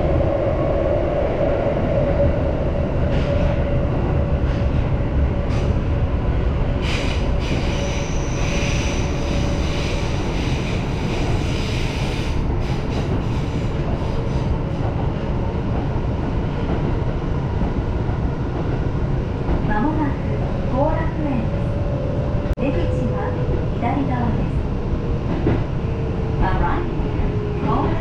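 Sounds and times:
train wheels rumbling on rails: 0.0s - 28.0s
wheels squealing on rails: 6.8s - 14.4s.

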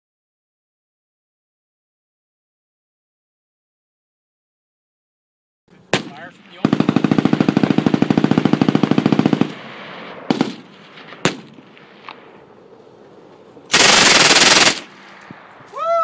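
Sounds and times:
single gunshots: 5.9s - 7.1s, 9.3s - 12.2s, 13.7s - 15.2s
submachine gun automatic fire: 5.9s - 9.7s, 10.3s - 11.5s, 13.7s - 15.0s.

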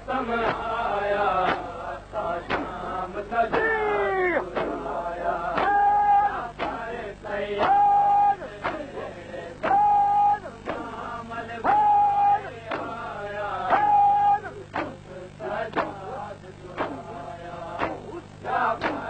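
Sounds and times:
man chanting a lament: 2.4s - 4.6s, 7.6s - 16.3s
steady beat: 2.4s - 7.0s, 9.6s - 19.0s.

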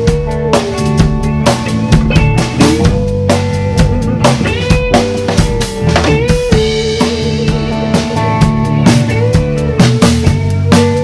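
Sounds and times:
drum kit beat: 0.0s - 11.0s
held lead line bending in pitch: 1.7s - 8.4s.

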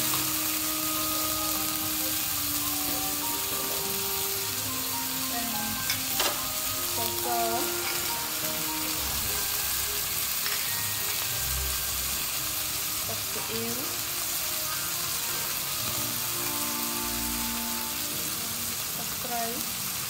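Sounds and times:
meat sizzling in a wok: 0.0s - 20.0s
metal spatula stirring: 7.7s - 8.6s.

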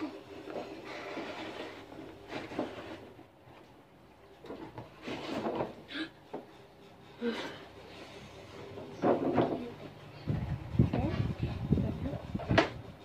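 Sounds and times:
cardboard box scraping and knocking: 0.6s - 3.2s, 4.6s - 5.8s.

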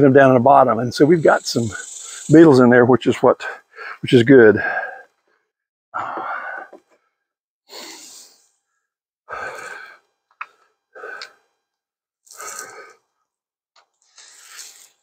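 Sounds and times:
man breathing heavily: 3.6s - 4.0s, 4.6s - 8.4s, 9.3s - 11.6s, 12.3s - 13.1s.

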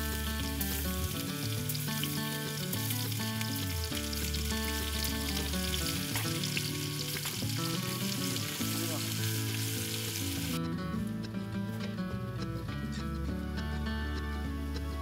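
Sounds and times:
food sizzling in hot stone bowl: 0.0s - 10.6s
background music of held notes: 0.0s - 15.0s.

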